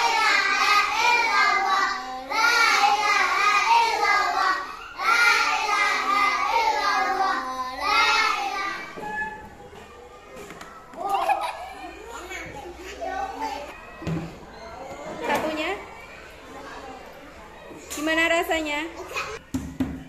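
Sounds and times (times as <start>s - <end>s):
children singing together: 0.0s - 9.3s.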